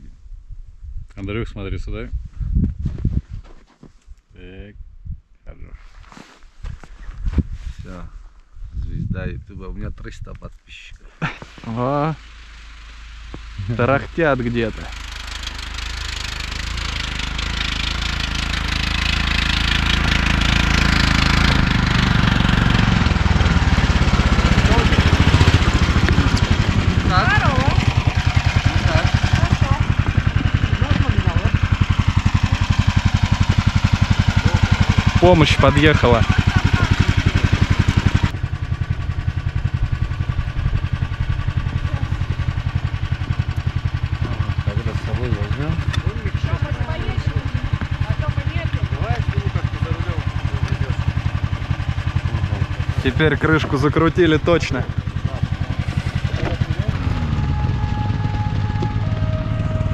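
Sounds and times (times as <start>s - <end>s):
snowmobile engines: 10.7s - 59.9s
hiss: 11.2s - 14.3s.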